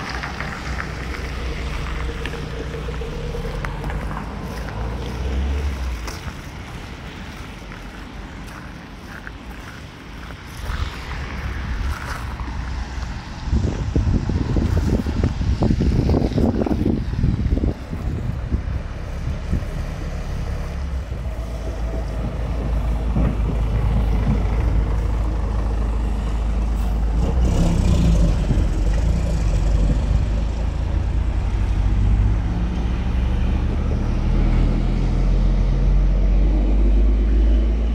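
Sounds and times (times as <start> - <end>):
car driving past: 0.0 - 6.9
low engine rumble: 0.0 - 37.9.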